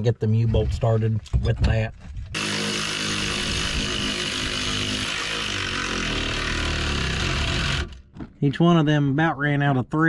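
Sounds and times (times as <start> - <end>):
power tool driving nuts: 2.3 - 8.2.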